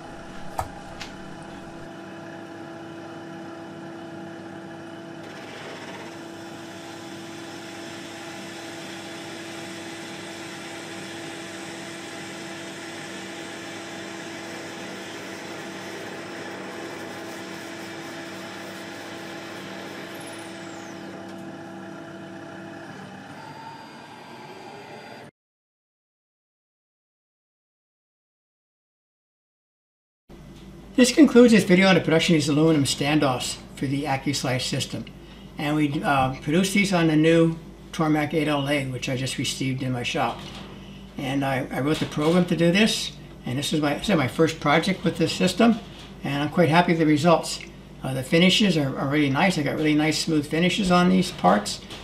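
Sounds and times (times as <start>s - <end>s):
rising machine tone: 0.0s - 1.9s, 15.2s - 25.3s
lathe spindle whine: 0.0s - 25.3s.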